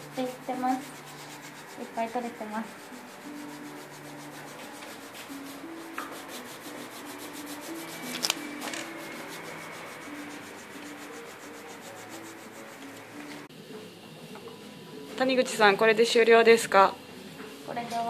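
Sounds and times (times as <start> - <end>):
foot file rasping on skin: 0.0 - 13.4.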